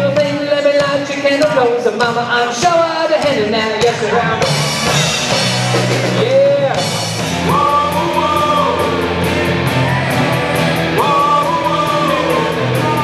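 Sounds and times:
live rock band playing: 0:00.0 - 0:13.0
sliding guitar melody: 0:04.3 - 0:13.0.

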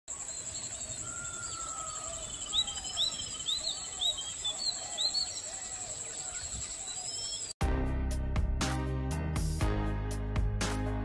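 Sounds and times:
low bird warbling: 0:00.1 - 0:07.5
upward-sweeping bird chirps: 0:00.2 - 0:07.6.

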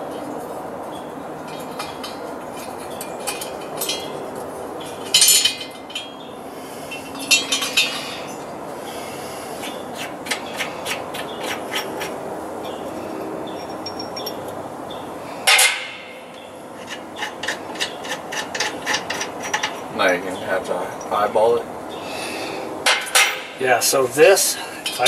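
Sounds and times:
steady background hum: 0:00.0 - 0:25.0
metal scraping and clinking: 0:00.9 - 0:08.5, 0:11.4 - 0:14.5, 0:15.4 - 0:20.1, 0:22.8 - 0:24.0.

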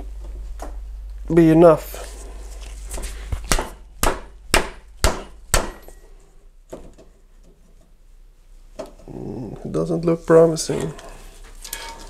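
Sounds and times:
hammer striking metal: 0:03.5 - 0:06.1.

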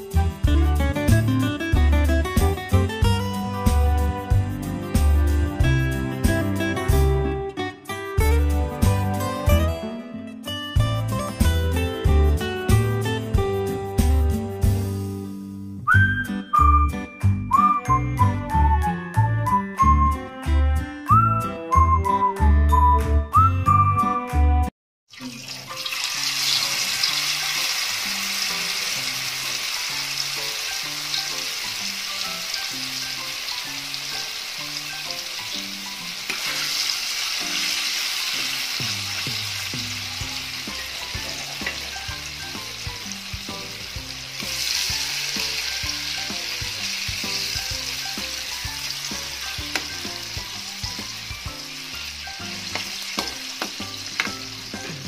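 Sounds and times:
tofu sizzling in oil: 0:25.1 - 0:55.0.

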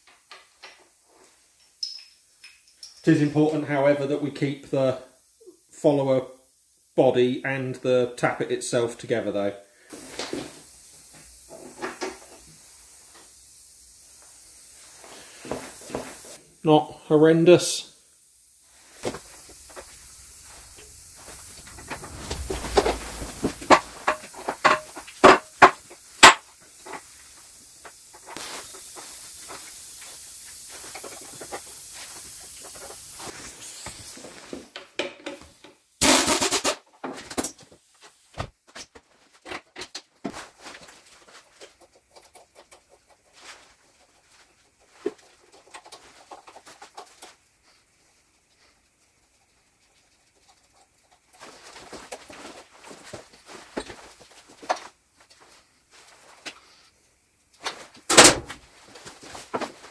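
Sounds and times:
steady hiss: 0:00.0 - 0:38.8, 0:40.3 - 0:59.9
metal clinks and knocks: 0:01.5 - 0:03.2
compressed-air tool burst: 0:09.8 - 0:16.4, 0:18.7 - 0:34.5, 0:36.0 - 0:36.8.

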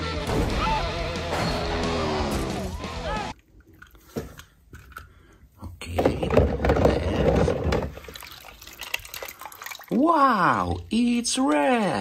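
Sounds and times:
film music: 0:00.0 - 0:03.4
small clicks and splashes: 0:03.3 - 0:05.4, 0:07.7 - 0:10.0
bubbles crackling: 0:07.6 - 0:11.0.

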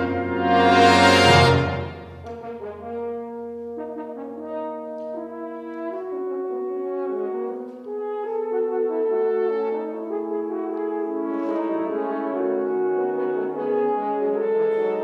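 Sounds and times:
brass choir soft chords: 0:00.0 - 0:05.4.

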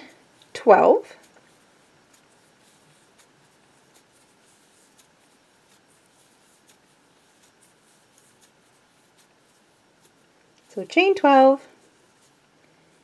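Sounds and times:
crochet hook ticks and rubbing: 0:00.4 - 0:12.7.

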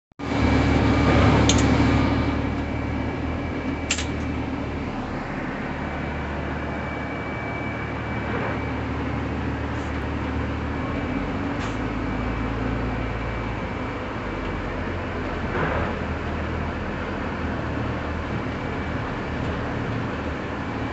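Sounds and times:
bus engine humming: 0:00.2 - 0:20.9.

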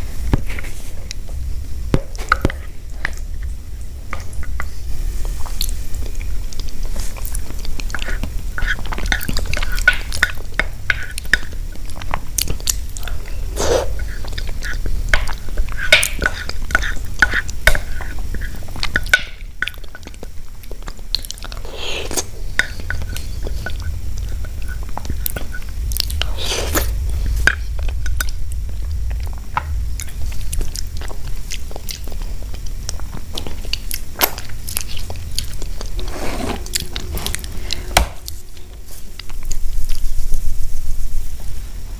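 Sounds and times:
low steady hum: 0:00.0 - 0:41.9
chewing and slurping: 0:05.2 - 0:40.0
spoon scraping a glass dish: 0:36.0 - 0:37.9.

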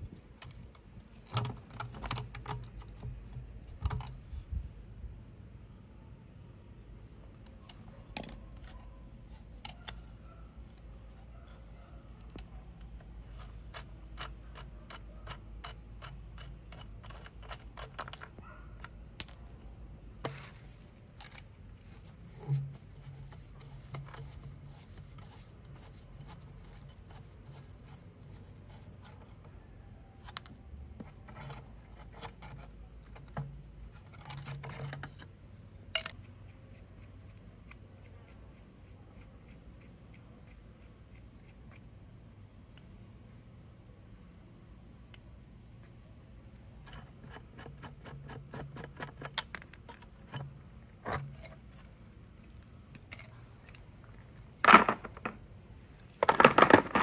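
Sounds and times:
metal clicks and scrapes from tools: 0:07.4 - 0:19.6, 0:20.2 - 0:38.6, 0:39.2 - 0:42.1, 0:46.8 - 0:57.0.

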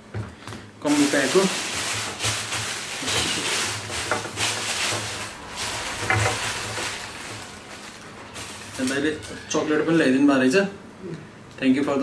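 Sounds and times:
packaging rustling and crinkling: 0:00.5 - 0:10.0.

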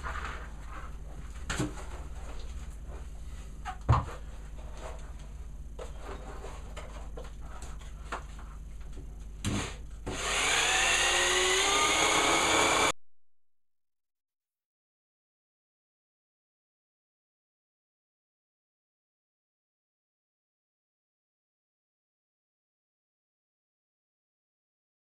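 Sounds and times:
electric power drill running: 0:10.1 - 0:13.0.

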